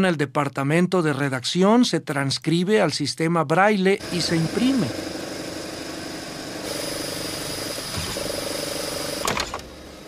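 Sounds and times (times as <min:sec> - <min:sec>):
machine hum: 0:04.0 - 0:10.0.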